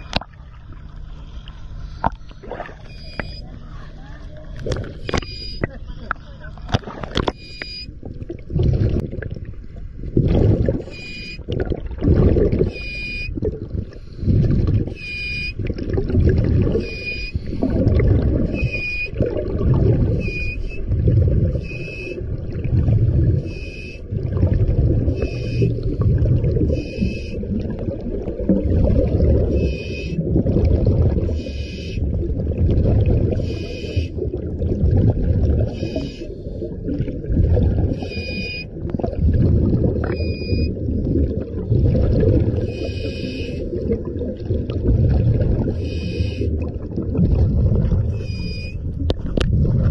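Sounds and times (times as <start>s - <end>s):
air bubbling underwater: 2.0s - 3.5s, 6.7s - 49.9s
diver breathing through regulator: 12.3s - 15.6s, 16.8s - 19.2s, 19.9s - 22.2s, 25.1s - 27.4s, 29.4s - 30.3s, 31.3s - 32.1s, 33.3s - 34.3s, 35.6s - 37.0s, 42.5s - 43.8s, 45.6s - 46.7s
short high whistle: 20.2s - 20.8s.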